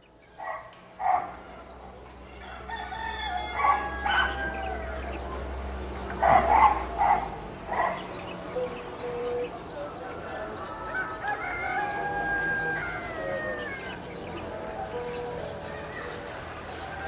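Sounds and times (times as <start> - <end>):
rooster crowing: 1.3 - 5.3, 9.7 - 17.0.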